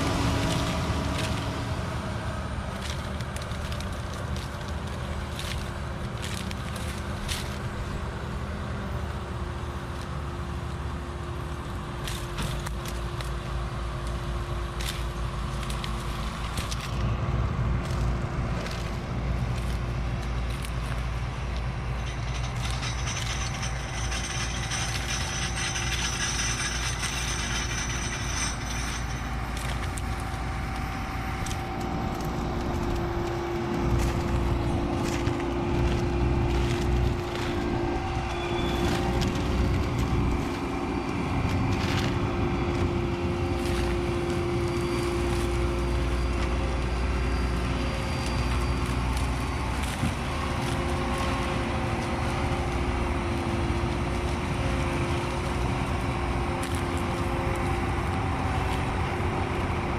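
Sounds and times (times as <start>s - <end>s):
diesel engines droning: 0.0s - 59.9s
high whine: 16.8s - 53.8s.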